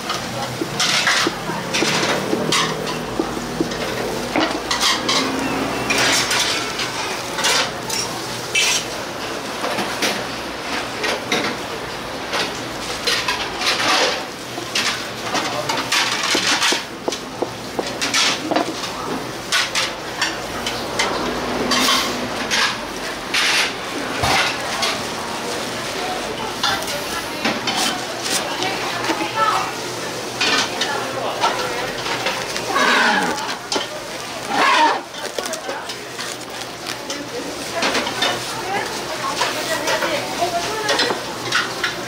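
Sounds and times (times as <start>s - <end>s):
dishes and utensils clattering: 0.0s - 9.0s, 12.3s - 25.1s, 37.1s - 42.0s.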